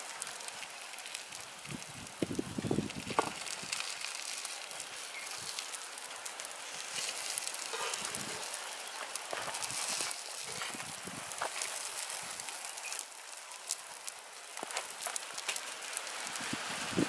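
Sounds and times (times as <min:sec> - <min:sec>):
food sizzling in a frying pan: 0:00.0 - 0:17.0.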